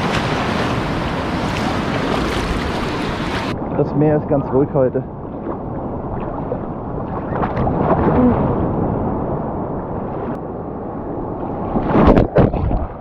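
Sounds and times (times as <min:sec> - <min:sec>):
sea water sloshing: 0:00.0 - 0:03.6
wind noise on microphone: 0:00.0 - 0:13.0.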